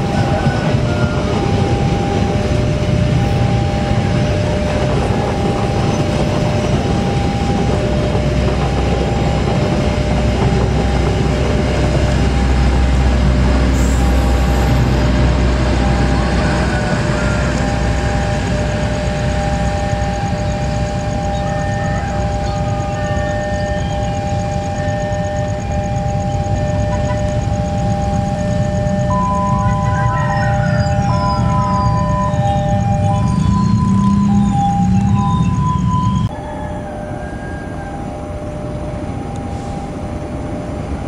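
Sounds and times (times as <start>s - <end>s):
train wheels rumbling on rails: 0.0s - 41.0s
two-note beeping tone: 19.6s - 36.5s.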